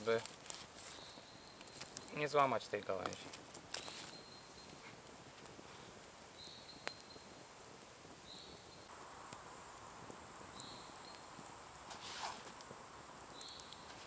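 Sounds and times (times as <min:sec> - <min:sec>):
campfire pop: 0:00.0 - 0:14.0
insects hissing: 0:08.2 - 0:14.0.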